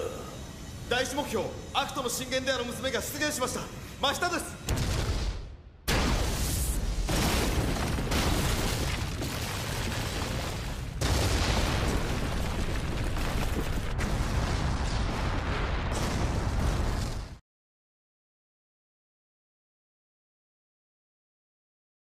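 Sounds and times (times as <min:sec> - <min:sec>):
rumble of explosions: 0:00.0 - 0:17.4
loud explosion blast: 0:04.6 - 0:17.4.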